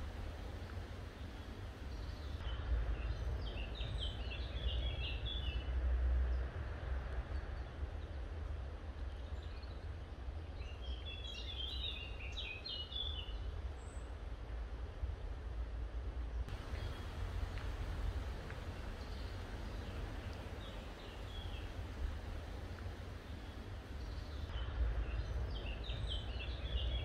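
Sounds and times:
songbird chirping: 0:00.0 - 0:05.7, 0:09.0 - 0:14.2, 0:16.5 - 0:27.0
wind buffeting microphone: 0:16.5 - 0:27.0.

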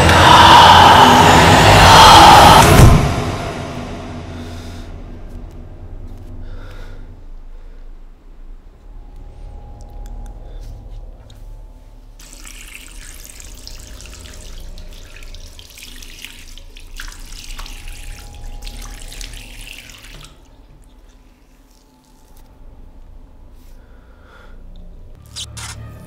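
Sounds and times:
low steady hum: 0:00.0 - 0:26.0
water running: 0:12.2 - 0:22.5.

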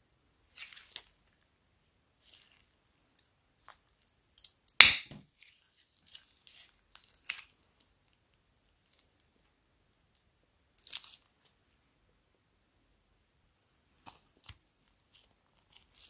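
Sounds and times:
wet slime squelch: 0:00.4 - 0:01.4, 0:02.1 - 0:09.4, 0:10.7 - 0:11.8, 0:13.7 - 0:16.0.

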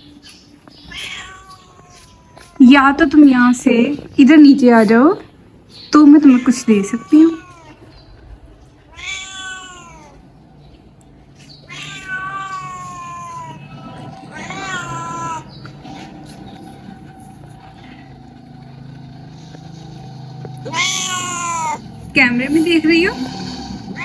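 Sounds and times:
cat meowing: 0:00.8 - 0:02.6, 0:06.2 - 0:08.0, 0:08.8 - 0:10.3, 0:11.6 - 0:15.6, 0:20.6 - 0:21.9.

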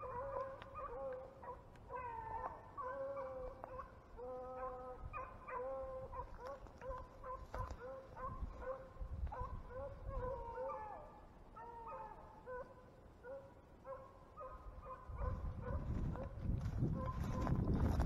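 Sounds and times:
dogs baying and yelping: 0:00.0 - 0:16.4
footsteps through dry grass: 0:06.2 - 0:09.8, 0:15.2 - 0:18.0.

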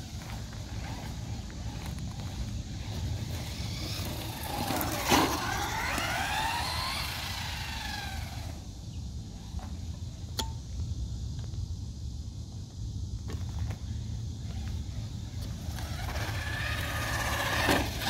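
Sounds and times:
electric motor whining: 0:00.2 - 0:08.6, 0:15.4 - 0:18.0.

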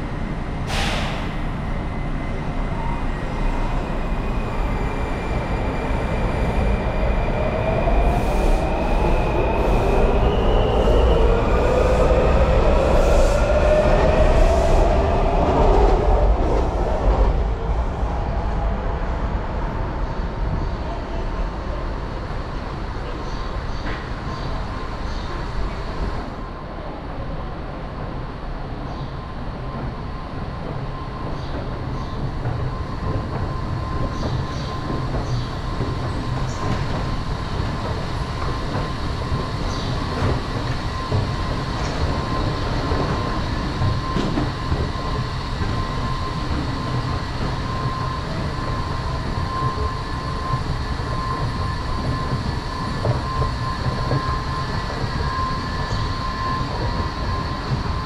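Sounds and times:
train rumble: 0:00.0 - 0:58.0.

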